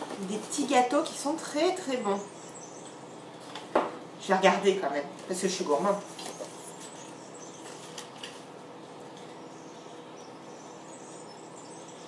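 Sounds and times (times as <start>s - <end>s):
paper and cardboard rustling: 5.6s - 8.5s.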